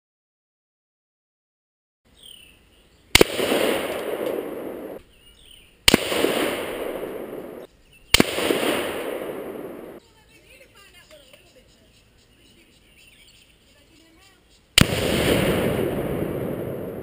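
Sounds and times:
rifle shots with echo: 3.1s - 5.0s, 5.8s - 10.0s, 14.8s - 17.0s.

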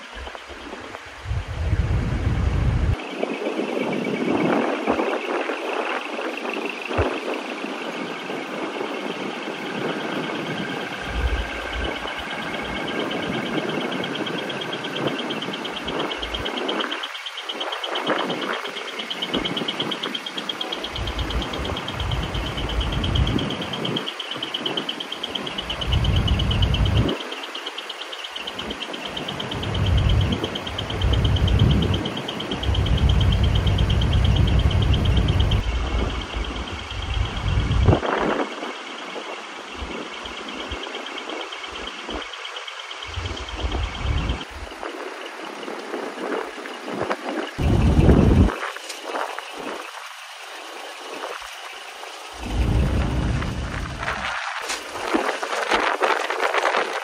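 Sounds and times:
steady rushing noise: 0.0s - 57.0s
low rumble: 1.2s - 3.0s, 52.4s - 54.3s
truck engine: 5.2s - 17.3s, 18.0s - 27.1s, 28.6s - 38.0s, 47.6s - 49.6s, 50.2s - 56.6s
fast high pulsing beep: 9.8s - 27.2s, 27.8s - 38.0s, 40.4s - 44.5s.

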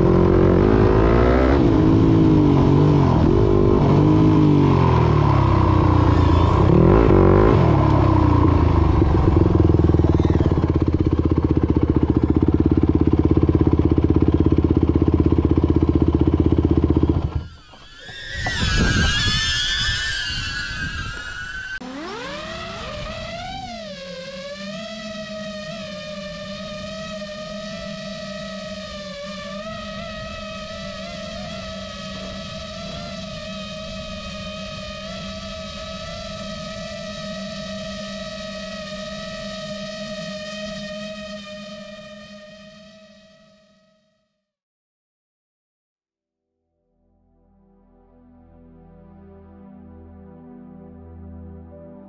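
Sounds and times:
motorcycle engine revving: 0.0s - 42.9s
electronic music with synth tones: 48.1s - 52.0s.

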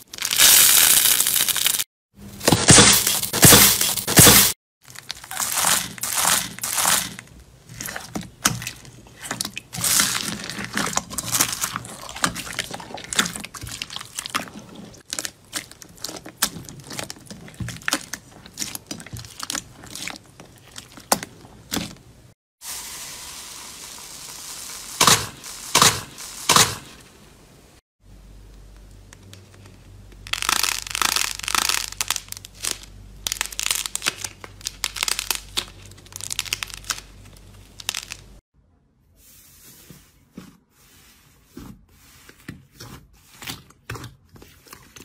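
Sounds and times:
crunchy slime crackling: 2.6s - 22.0s, 29.2s - 38.4s.

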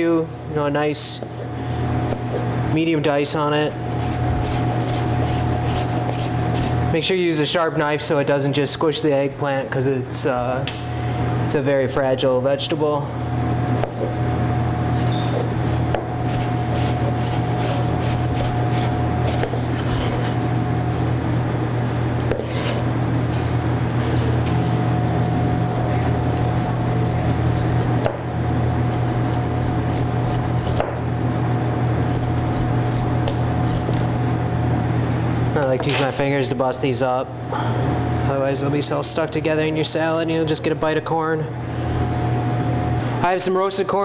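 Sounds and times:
steady low hum: 0.0s - 44.0s
knife scraping corn: 3.8s - 6.8s, 14.9s - 20.4s, 22.3s - 22.9s, 25.2s - 30.9s, 32.0s - 34.1s.

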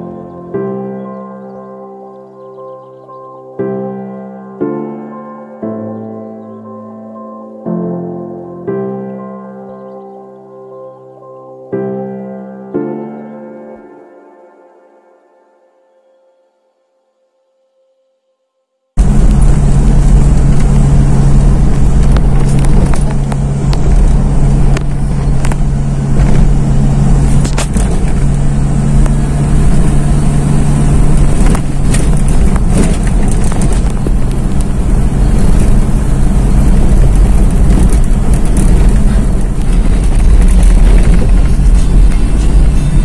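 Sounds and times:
car engine drone and road noise: 19.0s - 43.0s
short clicks and bumps: 22.0s - 26.5s, 27.2s - 29.2s, 31.1s - 34.7s, 37.5s - 43.0s.

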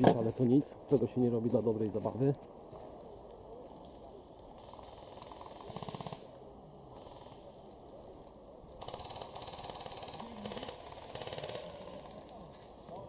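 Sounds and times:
distant airsoft guns firing full-auto: 8.8s - 12.0s.

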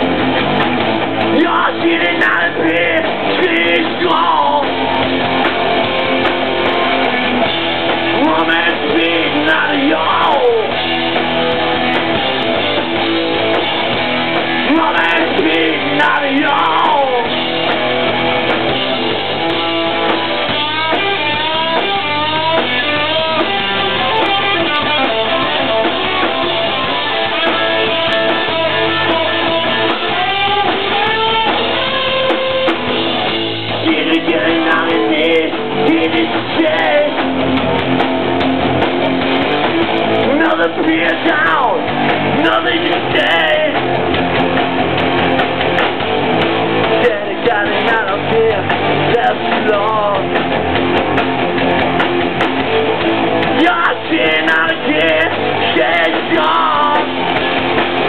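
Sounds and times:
punk rock band playing: 0.0s - 58.0s
person singing: 1.3s - 4.7s, 8.2s - 10.8s, 14.6s - 17.3s, 33.8s - 37.2s, 53.6s - 57.1s.

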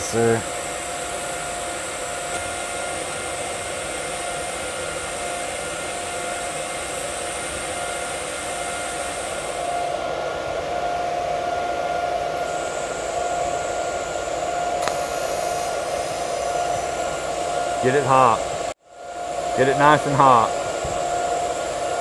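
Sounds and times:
welding arc hissing: 0.0s - 10.0s, 14.8s - 18.8s
sharp click: 14.8s - 15.0s.

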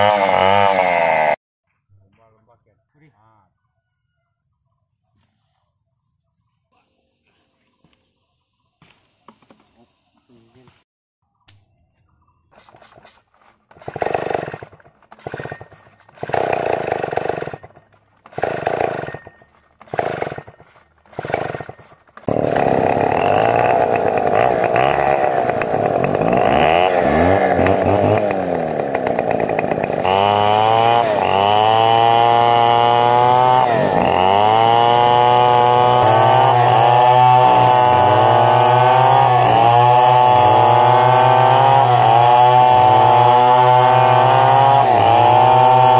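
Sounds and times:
chainsaw cutting log: 0.0s - 1.4s, 12.6s - 45.9s.

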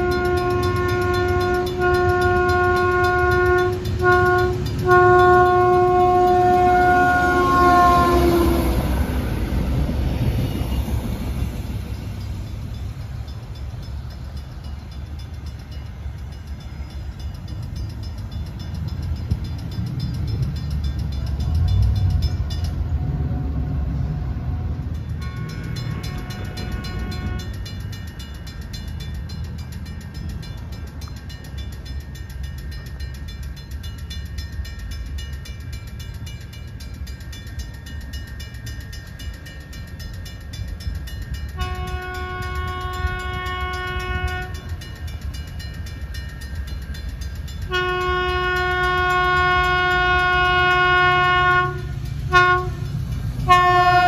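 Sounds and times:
train horn blasts: 0.0s - 9.0s, 23.9s - 27.6s, 41.5s - 44.8s, 47.6s - 54.0s
diesel railcar rumble: 0.0s - 54.0s.

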